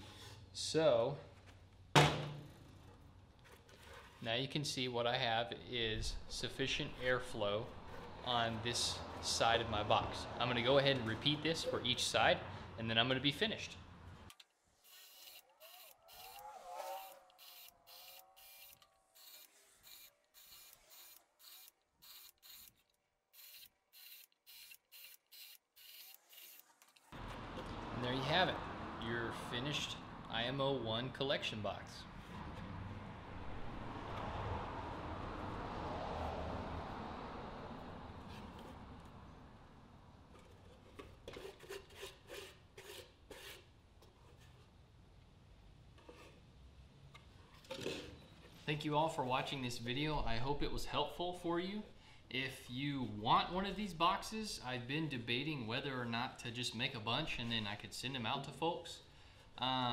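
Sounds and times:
cordless drill boring wood: 14.8 - 16.4, 17.0 - 22.7, 23.4 - 26.6.

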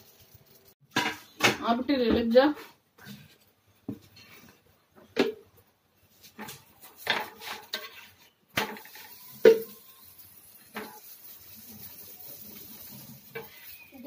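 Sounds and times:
faint sizzle: 6.0 - 14.0
metal spoon clinking on pan: 12.8 - 14.0.

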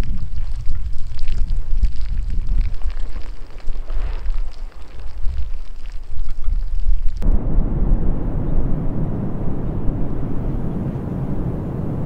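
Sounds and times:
faint crackles: 0.0 - 8.1
lava flow deep rumble: 0.0 - 12.0.

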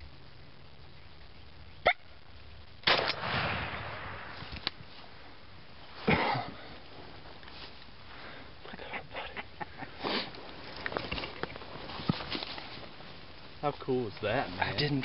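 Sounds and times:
shotgun blast: 2.8 - 4.6.

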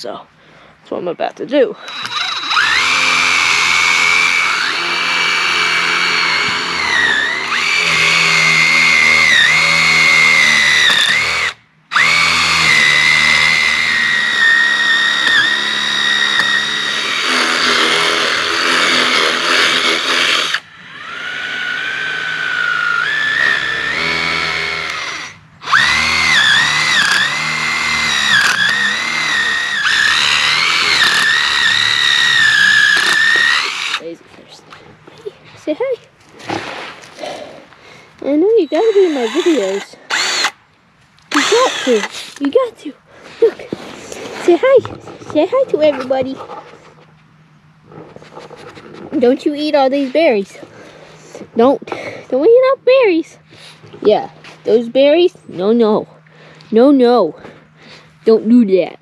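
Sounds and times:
power drill boring into wood: 1.8 - 34.1, 38.2 - 40.6, 41.3 - 42.5.

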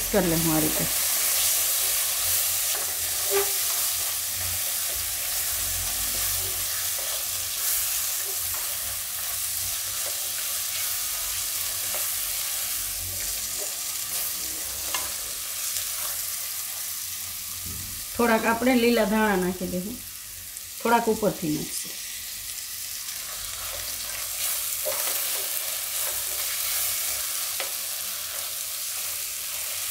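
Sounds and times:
food sizzling in hot oil: 0.0 - 29.9
spatula scraping and tapping pan: 1.8 - 3.9.

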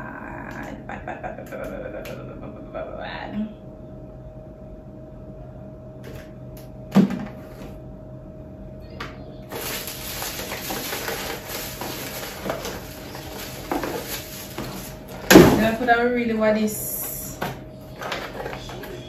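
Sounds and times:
faint steady hum: 0.0 - 19.0
paper wrapping rustling: 9.5 - 15.8.

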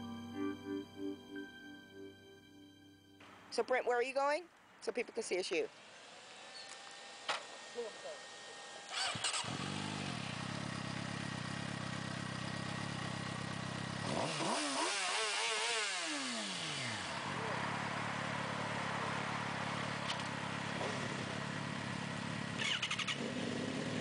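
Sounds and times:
motorcycle engine idling: 7.7 - 14.2, 17.1 - 24.0.

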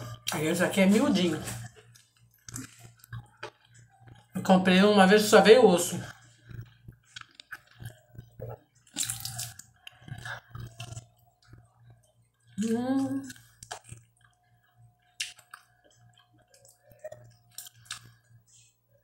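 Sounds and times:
lip-smacking while chewing: 13.2 - 18.4.

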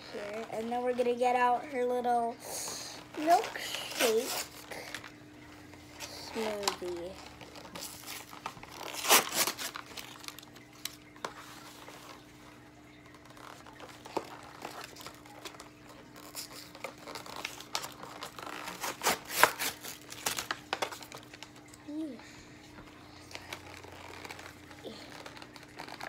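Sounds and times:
cardboard crinkling and rustling: 3.0 - 12.4, 13.0 - 21.7, 23.3 - 26.0.

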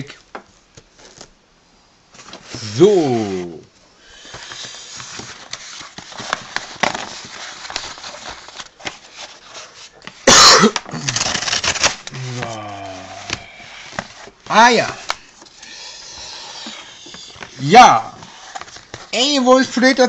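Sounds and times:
cardboard tearing: 4.4 - 14.4
loud vocal burst: 12.1 - 13.8
person humming: 12.1 - 13.9, 15.6 - 17.5.

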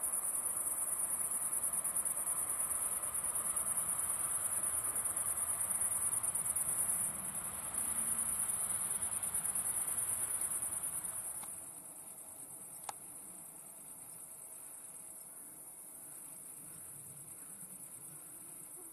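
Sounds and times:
faint click: 11.4 - 11.6, 12.8 - 13.0.

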